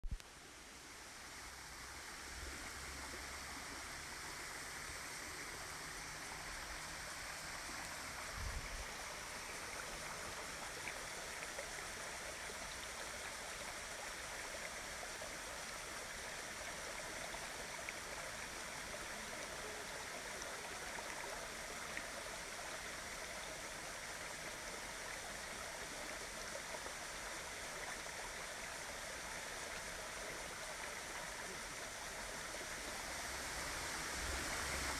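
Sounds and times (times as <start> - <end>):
rushing stream and waterfall: 0.0 - 34.9.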